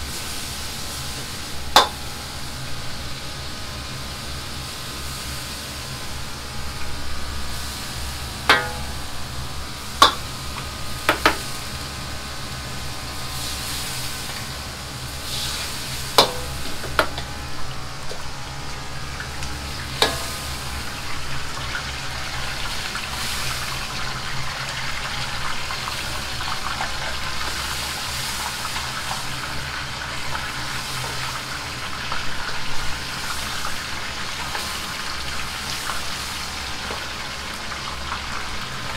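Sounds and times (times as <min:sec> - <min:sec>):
gas burner roaring: 0:00.0 - 0:38.9
tofu sizzling in a wok: 0:00.0 - 0:38.9
steel ladle clanging on wok: 0:01.8 - 0:02.0, 0:08.5 - 0:09.1, 0:10.0 - 0:10.3, 0:16.2 - 0:16.6, 0:20.0 - 0:20.5.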